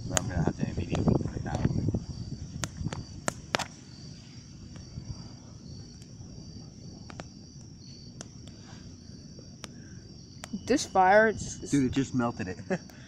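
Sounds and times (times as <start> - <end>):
crickets chirping: 0.0 - 13.0
wood fire crackling and popping: 0.0 - 13.0.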